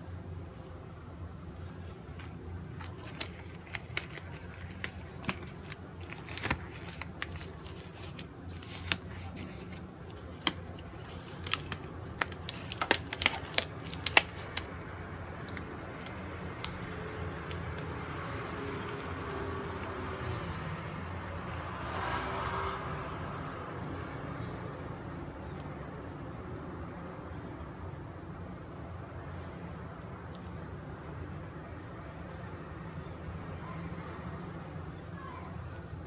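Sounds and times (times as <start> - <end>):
disposable glove crinkling and snapping: 1.6 - 18.0.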